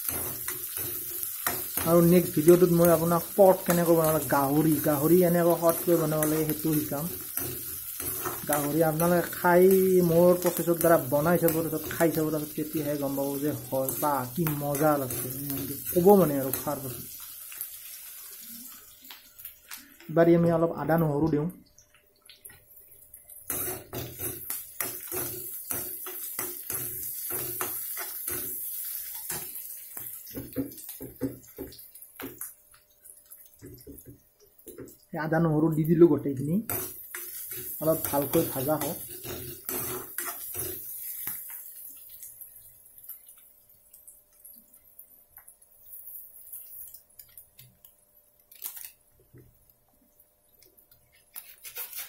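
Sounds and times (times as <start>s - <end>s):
food sizzling in hot oil: 0.0s - 52.0s
metal spoon scraping a pan: 5.7s - 9.3s, 13.0s - 16.8s, 23.5s - 29.6s, 36.7s - 41.6s, 51.1s - 52.0s.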